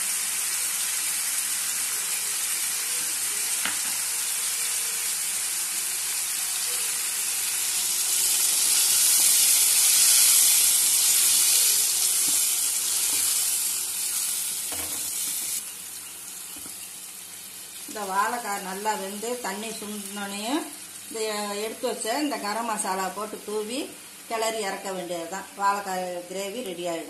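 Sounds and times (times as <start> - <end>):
food sizzling in a hot pan: 0.0 - 26.8.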